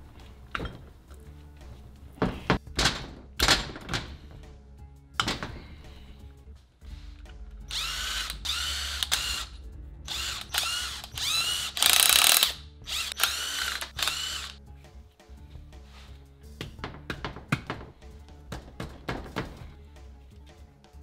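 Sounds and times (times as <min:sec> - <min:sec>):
quiet background music: 0:00.0 - 0:21.0
cordless power tool bursts: 0:10.1 - 0:14.6.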